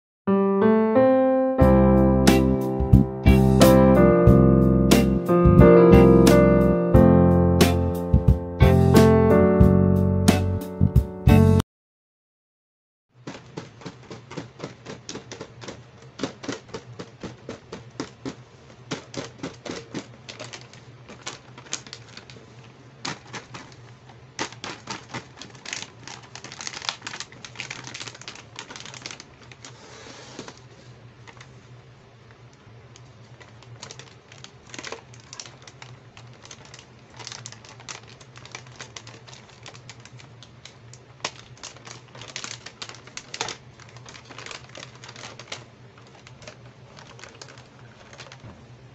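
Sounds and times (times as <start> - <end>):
fingers tapping on plastic packaging: 13.2 - 22.4, 24.4 - 29.7, 33.8 - 48.6
plastic bag crinkling: 13.2 - 31.7, 33.0 - 48.9.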